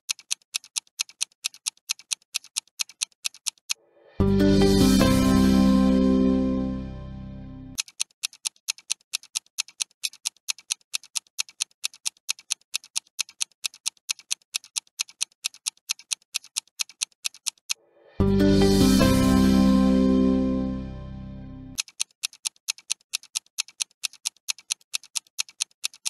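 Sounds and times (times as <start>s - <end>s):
countdown timer ticking: 3.4s - 7.8s, 18.2s - 21.7s
background music: 3.9s - 7.8s, 17.9s - 21.8s.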